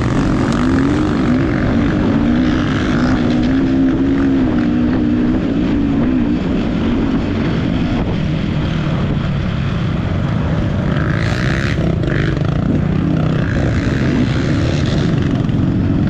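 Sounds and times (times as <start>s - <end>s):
motorcycle engine running: 0.0s - 16.0s.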